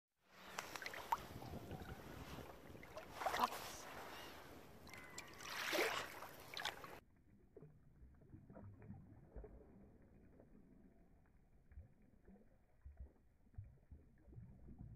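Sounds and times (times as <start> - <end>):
dog blowing bubbles in water: 7.4 - 14.9.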